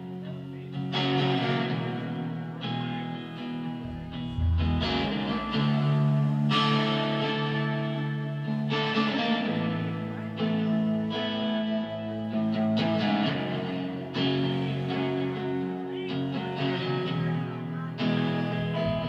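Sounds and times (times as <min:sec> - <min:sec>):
electric guitar strumming chords: 0:00.0 - 0:19.0
rock band low end: 0:01.2 - 0:11.1, 0:16.3 - 0:19.0.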